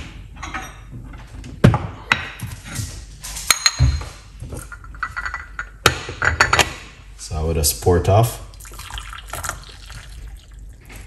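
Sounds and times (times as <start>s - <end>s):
kitchenware clinking: 3.4s - 6.8s.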